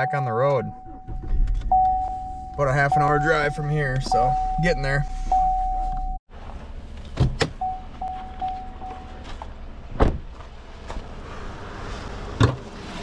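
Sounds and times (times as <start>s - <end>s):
door-open warning chime: 0.0s - 6.2s, 7.6s - 9.2s
truck door thumps and knocks: 9.9s - 10.4s.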